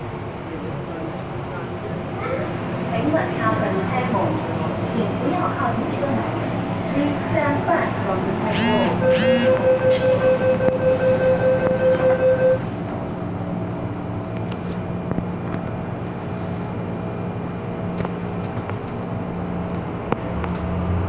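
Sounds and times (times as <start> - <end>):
train humming: 0.0 - 21.0
rapid door warning beeping: 8.5 - 12.6.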